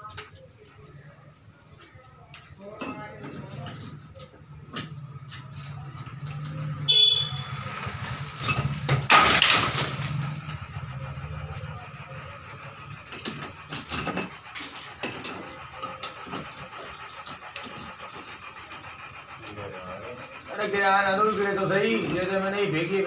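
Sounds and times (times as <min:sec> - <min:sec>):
falling debris clattering: 0:07.8 - 0:11.2.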